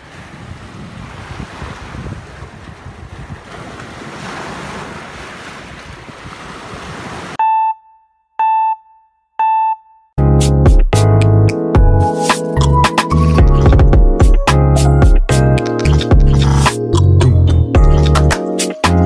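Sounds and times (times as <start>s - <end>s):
waves breaking on rocks: 0.0s - 7.4s
wind buffeting microphone: 0.0s - 7.4s
electronic countdown beeps: 7.4s - 10.1s
music with strong beat: 10.2s - 19.0s.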